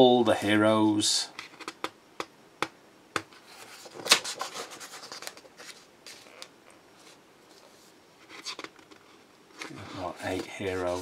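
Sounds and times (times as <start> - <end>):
book pages turning: 3.4 - 11.0.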